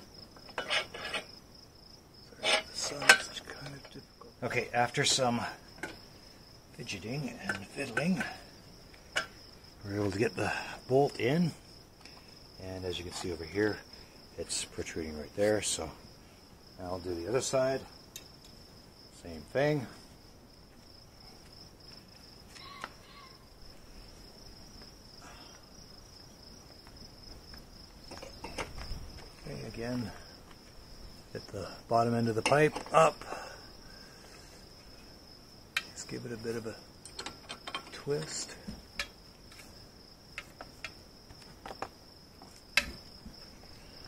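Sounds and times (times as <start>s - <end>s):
insect trilling: 0.0s - 32.3s.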